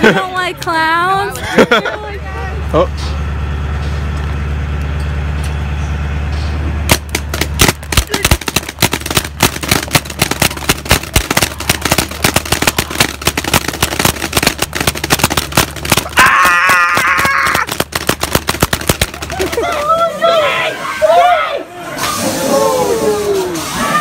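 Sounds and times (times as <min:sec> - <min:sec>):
paintball guns firing pops: 0:06.9 - 0:19.9.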